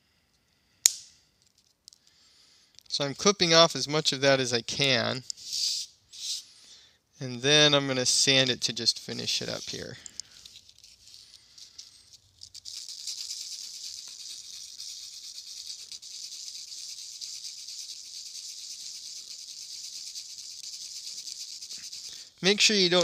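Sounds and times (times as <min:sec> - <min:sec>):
plastic rubbed on sandpaper: 0:05.0 - 0:06.4, 0:08.5 - 0:23.0.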